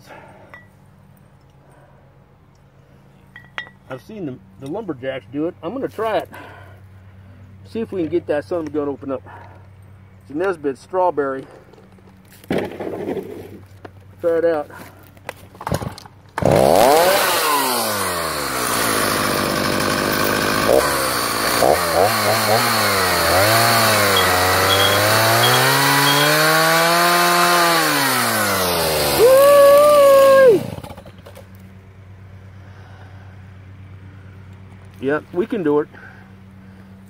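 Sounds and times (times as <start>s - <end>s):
chainsaw revving: 15.6s - 31.4s.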